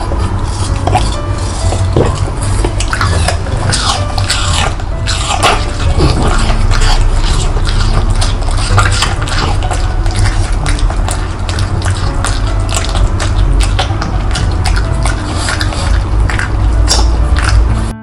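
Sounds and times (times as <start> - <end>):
dog chewing and lip smacking: 0.0 - 18.0.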